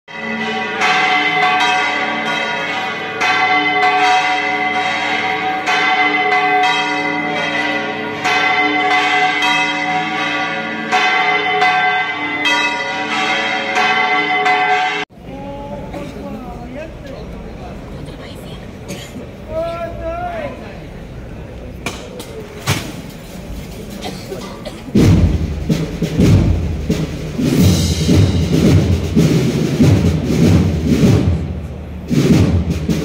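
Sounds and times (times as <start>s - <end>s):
church bells pealing: 0.1s - 16.2s.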